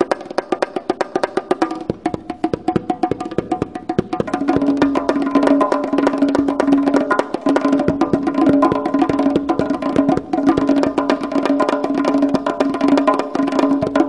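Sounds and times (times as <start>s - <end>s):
goblet drums played fast: 0.0s - 14.0s.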